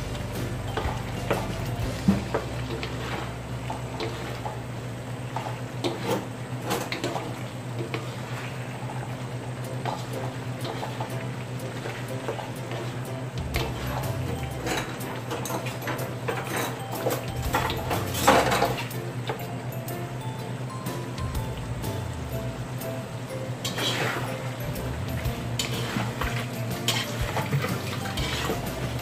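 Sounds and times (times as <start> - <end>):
stew simmering: 0.0 - 19.5, 20.5 - 29.0
steady low hum: 0.0 - 29.0
spatulas scraping a metal wok: 1.2 - 4.6, 5.8 - 7.2, 10.6 - 12.9, 13.5 - 16.8, 23.6 - 29.0.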